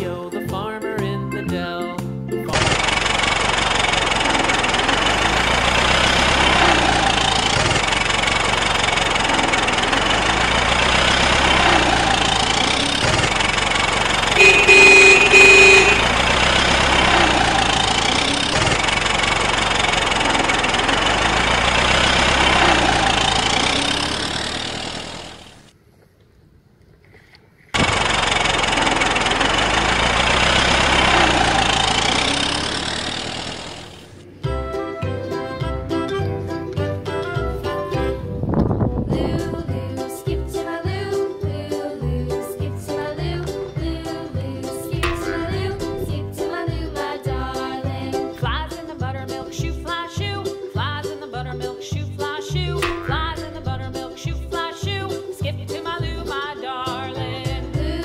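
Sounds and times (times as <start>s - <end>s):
truck engine running: 2.4s - 25.8s, 27.8s - 58.0s
horn honk: 14.1s - 18.7s, 29.5s - 33.1s, 45.0s - 46.0s.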